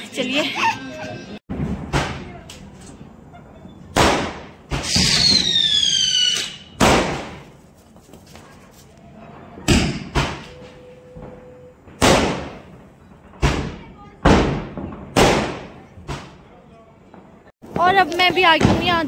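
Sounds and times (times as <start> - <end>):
fireworks bangs: 1.5 - 7.8, 9.2 - 19.0
whistling firework: 3.4 - 7.1, 9.1 - 13.8.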